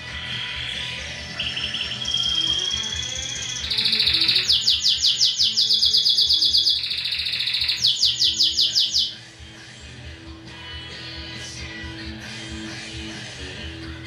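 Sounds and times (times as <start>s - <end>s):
canary singing trills: 1.2s - 9.2s.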